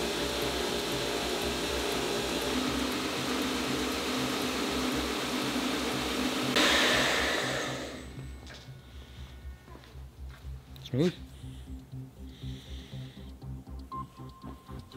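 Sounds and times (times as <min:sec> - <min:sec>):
belt grinder running: 0:00.0 - 0:08.4
steel grinding hiss: 0:00.0 - 0:08.4.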